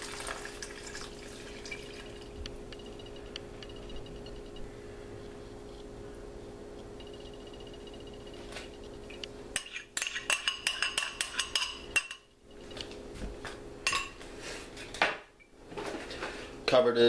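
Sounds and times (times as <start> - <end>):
slurry pouring: 0.0 - 2.3
glass cup clinking on glass dish: 1.0 - 2.3, 13.9 - 14.2.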